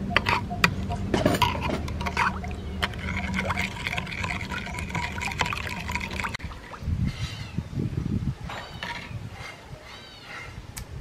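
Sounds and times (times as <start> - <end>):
liquid swishing and trickling: 0.9 - 7.5.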